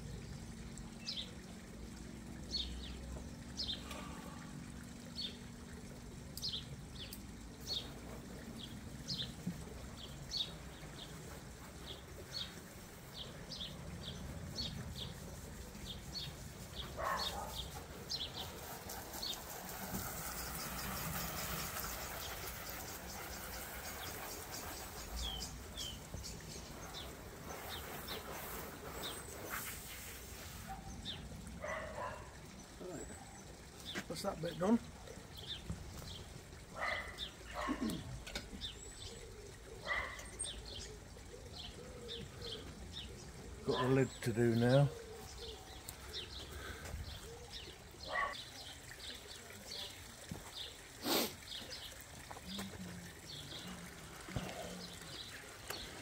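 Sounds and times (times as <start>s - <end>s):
hose nozzle spraying water: 6.3s - 31.3s, 50.7s - 56.0s
bird chirping: 11.8s - 29.7s.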